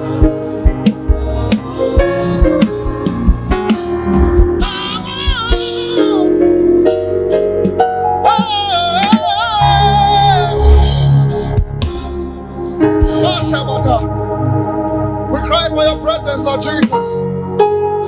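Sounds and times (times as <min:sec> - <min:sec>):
drum strikes: 0:00.0 - 0:06.0, 0:11.5 - 0:13.6
bass line: 0:00.0 - 0:17.0
keyboard accompaniment: 0:00.0 - 0:18.0.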